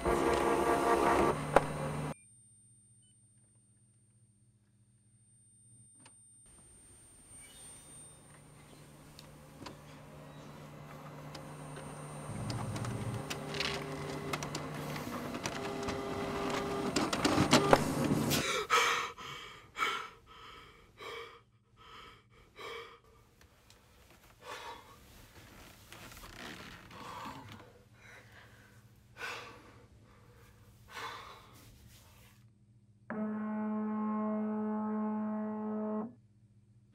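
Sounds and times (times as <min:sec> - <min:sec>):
drone with tones and clicks: 0:00.0 - 0:02.4, 0:07.2 - 0:18.2, 0:33.0 - 0:36.2
person gasping heavily: 0:18.3 - 0:23.1.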